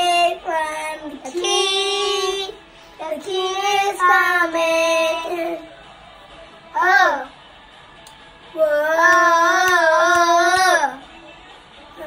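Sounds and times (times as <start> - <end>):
young boy singing: 0.0 - 5.7, 6.7 - 7.3, 8.5 - 11.1.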